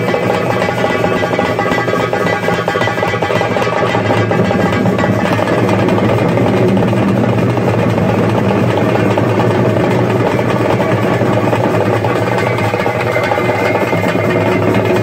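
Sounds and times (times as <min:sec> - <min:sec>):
drums in fast roll: 0:00.0 - 0:15.0.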